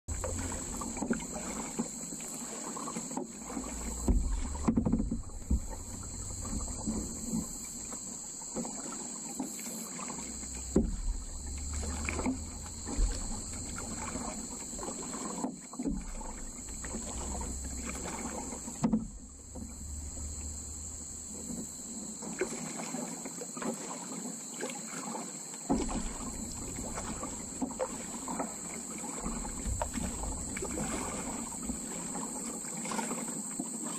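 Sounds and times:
paddle knocking on hull: 0.1s - 23.0s, 25.7s - 33.9s
high insect drone: 0.1s - 33.9s
paddle splashes and drips: 0.1s - 33.9s
wind rumble on microphone: 3.6s - 7.9s, 10.4s - 15.0s, 15.9s - 22.0s, 25.8s - 32.0s.

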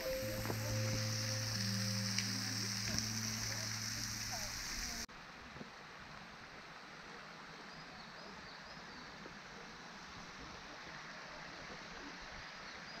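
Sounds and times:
stream rushing: 0.0s - 7.5s.

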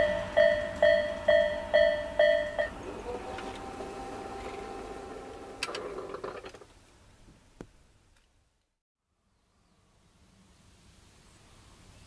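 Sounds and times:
level crossing alarm ringing: 0.0s - 5.2s
crossing barriers whining: 0.0s - 6.6s.

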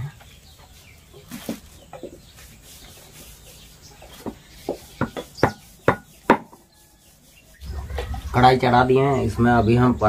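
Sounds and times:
metal rod pounding on wood: 4.2s - 6.7s.

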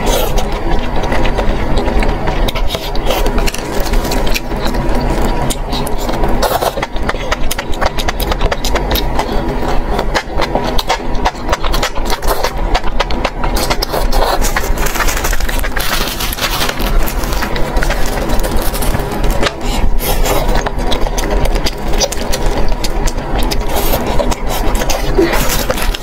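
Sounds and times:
slurping and chewing: 0.0s - 26.0s
steady low hum: 0.0s - 26.0s.

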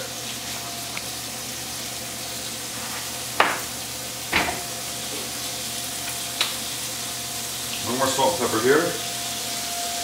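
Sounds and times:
steak sizzling in frying pan: 0.0s - 10.0s
sharp knocks: 3.4s - 3.7s.

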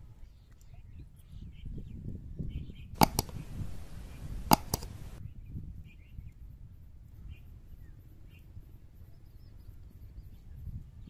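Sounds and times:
faint bird chirps: 7.1s - 11.0s.

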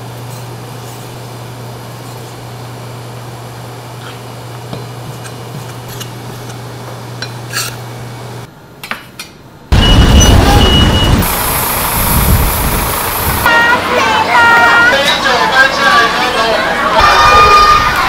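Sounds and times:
outdoor street noise: 9.7s - 18.0s.

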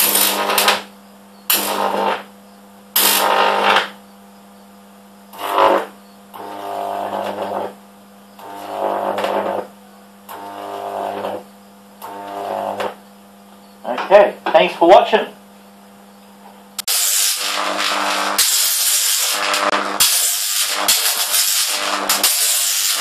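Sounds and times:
high-voltage arc crackle: 0.0s - 4.0s, 5.3s - 13.0s, 16.8s - 23.0s
loud electric buzz: 0.0s - 4.1s, 4.9s - 13.4s, 16.8s - 23.0s
low mains hum: 0.0s - 20.0s.

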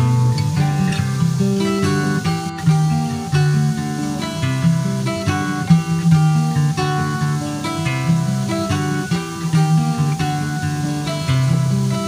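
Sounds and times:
acoustic guitar melody: 0.0s - 12.0s.

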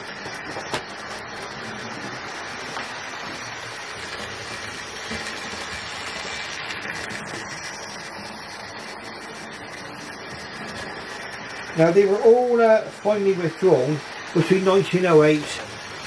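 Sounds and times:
model train wheels on rails: 0.0s - 16.0s.

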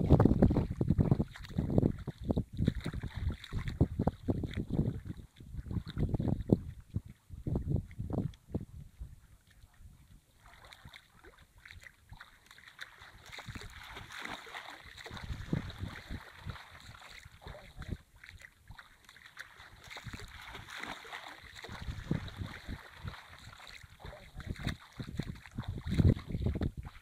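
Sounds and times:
wind buffeting microphone: 0.0s - 11.0s, 13.1s - 14.3s, 15.0s - 18.0s, 21.6s - 27.0s
water sloshing and splashing: 0.0s - 27.0s.

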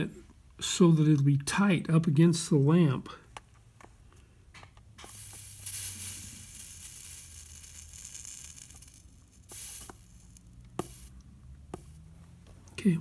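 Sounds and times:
flux sizzling under soldering iron: 5.0s - 12.1s.

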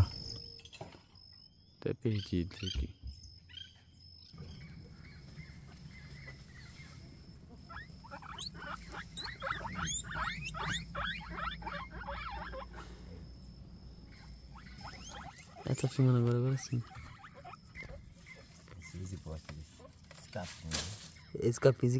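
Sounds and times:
steady low rumble: 4.4s - 14.8s
guinea pigs squeaking: 7.5s - 12.9s, 14.1s - 20.2s.

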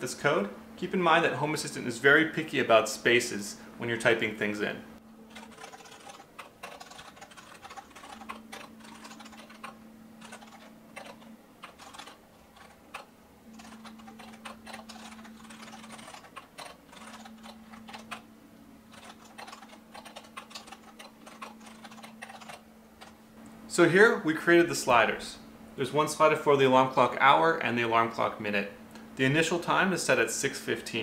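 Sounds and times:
low steady hum: 0.0s - 31.0s
typing on computer keyboard: 5.3s - 18.2s, 18.9s - 23.2s.

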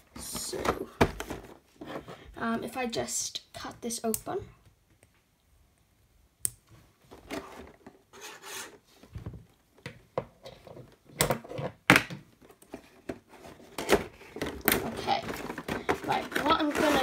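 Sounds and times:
cardboard scraping and rasping: 7.4s - 8.8s, 13.3s - 17.0s.

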